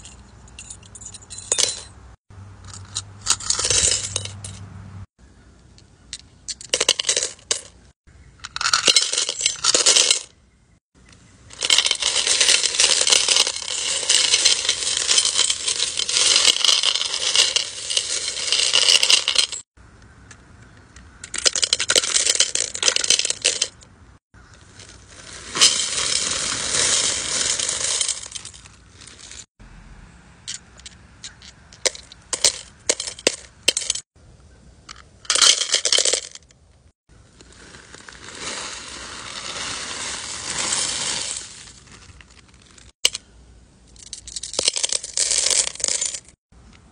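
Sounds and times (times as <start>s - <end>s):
stones and rings clattering into bowl: 0.0s - 2.0s, 2.7s - 4.6s, 8.4s - 10.3s, 11.5s - 19.7s, 25.5s - 29.5s, 44.0s - 46.4s.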